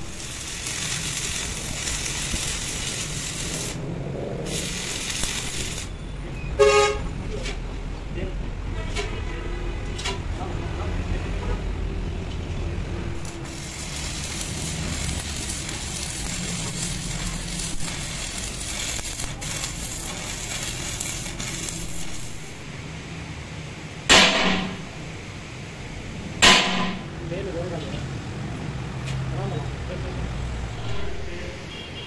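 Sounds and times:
arc welding crackling and sizzling: 0.0s - 6.0s, 12.4s - 23.2s.

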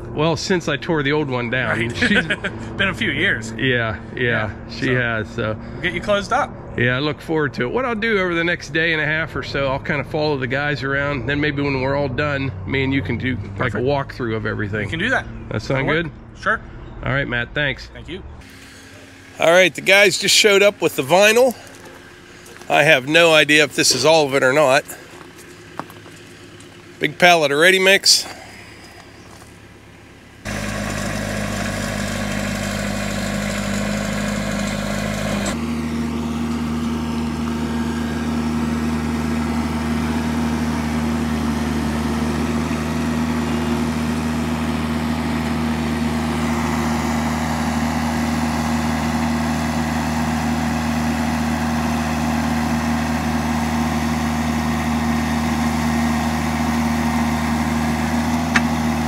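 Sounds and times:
loader engine running: 0.0s - 17.4s, 18.0s - 59.0s
auger digging: 30.5s - 48.0s.

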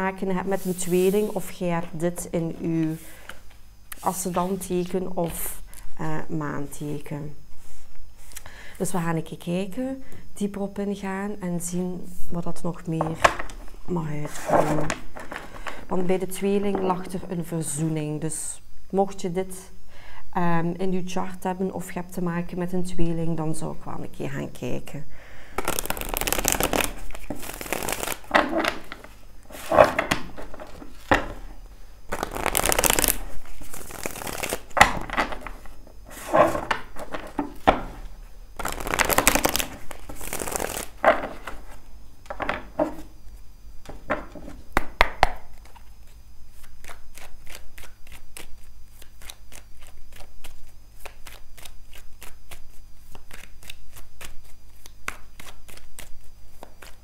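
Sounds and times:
cards riffle shuffled: 14.3s - 15.8s, 25.6s - 31.5s, 32.1s - 43.1s, 43.9s - 57.0s
cards shuffled hand to hand: 25.6s - 31.4s, 32.1s - 38.0s, 38.6s - 41.8s.

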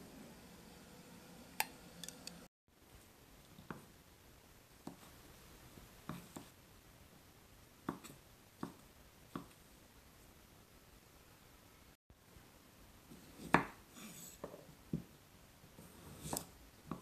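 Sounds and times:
knife chopping on cutting board: 6.1s - 6.5s, 7.9s - 9.5s, 13.2s - 14.6s, 15.9s - 17.0s.

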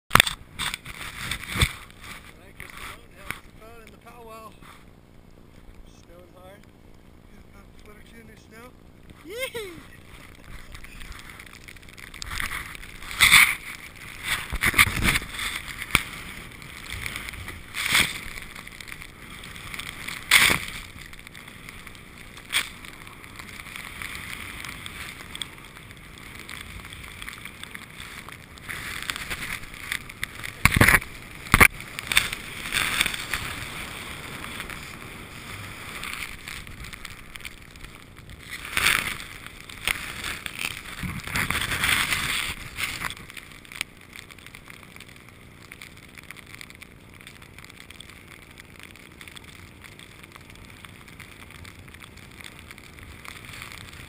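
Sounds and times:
skis sliding through powder snow: 0.6s - 4.8s, 7.8s - 43.7s, 52.6s - 54.0s.

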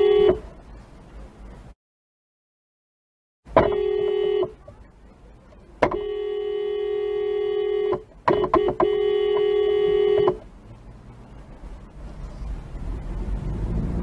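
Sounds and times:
car horn blasts: 0.0s - 0.5s, 3.5s - 4.8s, 5.8s - 10.4s
faint road noise: 0.0s - 1.8s, 3.5s - 14.0s.

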